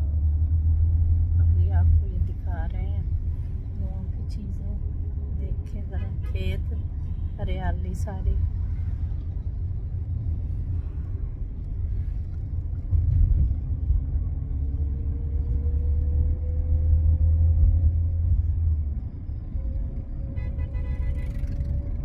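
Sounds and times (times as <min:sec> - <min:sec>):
car driving rumble inside cabin: 0:00.0 - 0:22.0.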